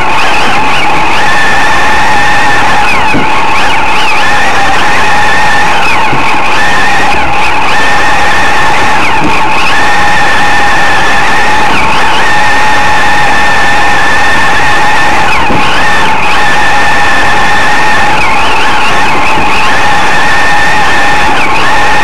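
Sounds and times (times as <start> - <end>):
race car engine at high revs: 0.0 - 22.0.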